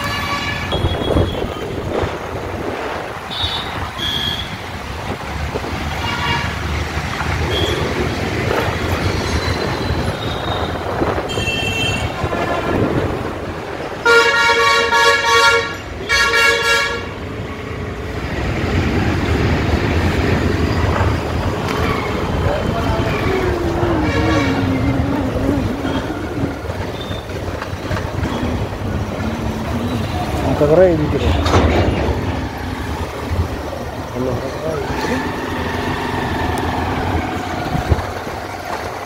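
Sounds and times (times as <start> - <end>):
street traffic: 0.0 - 39.0
car horn blasts: 14.0 - 17.1.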